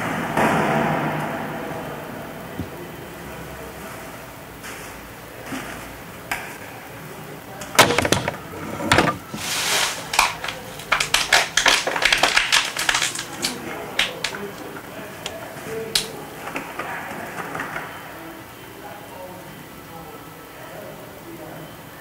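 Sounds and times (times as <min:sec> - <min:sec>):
plastic bags crinkling and rustling: 0:07.7 - 0:16.7.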